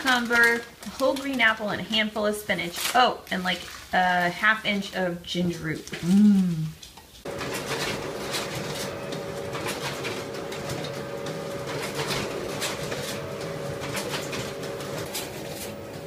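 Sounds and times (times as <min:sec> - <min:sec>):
photocopier running: 0:07.2 - 0:16.0.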